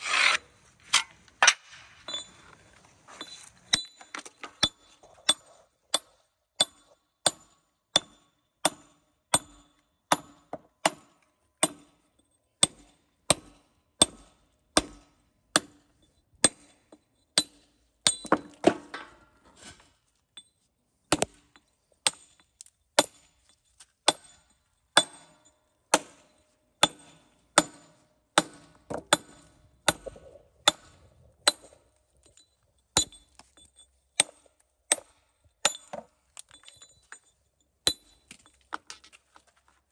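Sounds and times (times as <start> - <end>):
mallet striking steel chisel: 17.4 - 18.5, 24.1 - 31.8, 33.0 - 37.0, 37.8 - 38.3.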